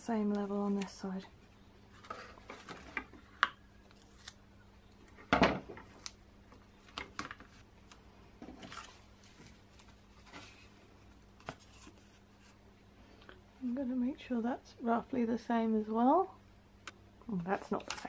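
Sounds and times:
tape and cardboard rustling: 0:01.9 - 0:04.4, 0:05.8 - 0:12.6, 0:17.4 - 0:18.0.

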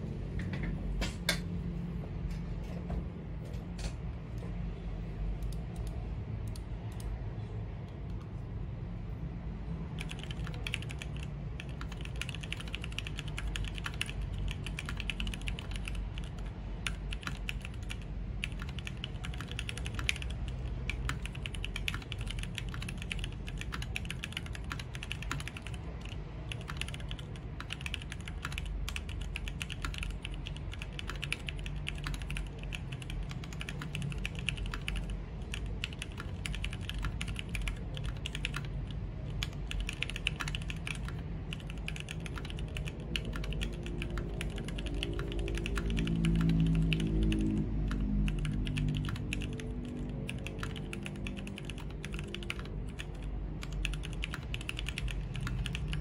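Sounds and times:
fast typing on mechanical keyboard: 0:09.9 - 0:56.0.

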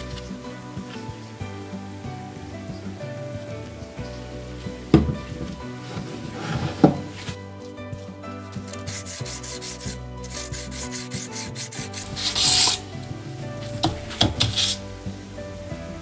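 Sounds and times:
metal scraping on sandpaper: 0:08.5 - 0:12.9, 0:13.8 - 0:14.9.

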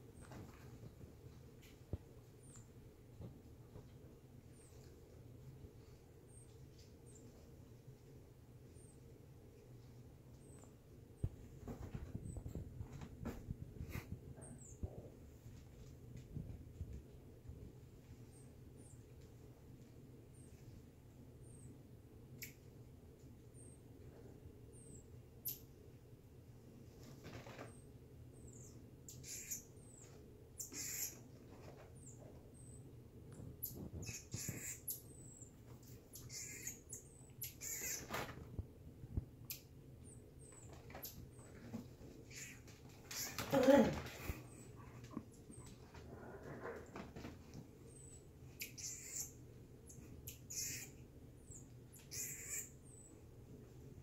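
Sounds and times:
marmoset chirping: 0:28.4 - 0:31.2, 0:33.6 - 0:38.1, 0:42.2 - 0:43.4, 0:47.9 - 0:53.2.

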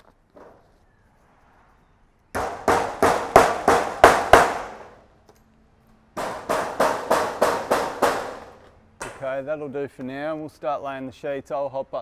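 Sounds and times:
hammer driving a nail: 0:02.4 - 0:05.0, 0:06.2 - 0:09.2.

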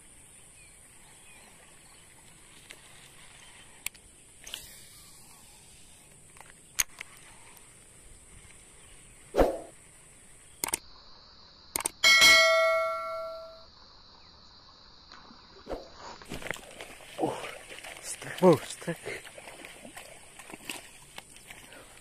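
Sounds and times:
quick clicks: 0:10.6 - 0:10.8, 0:11.8 - 0:12.0
bell ding: 0:12.0 - 0:13.6.

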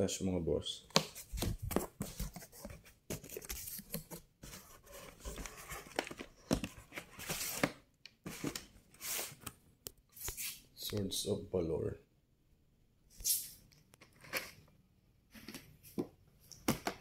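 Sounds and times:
cardboard rustling and scraping: 0:01.1 - 0:09.4.

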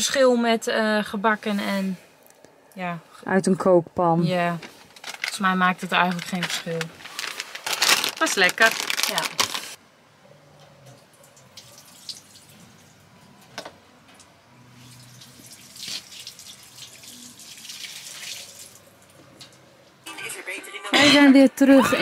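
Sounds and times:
liquid pouring into metal sink: 0:11.3 - 0:12.8, 0:14.9 - 0:19.1.

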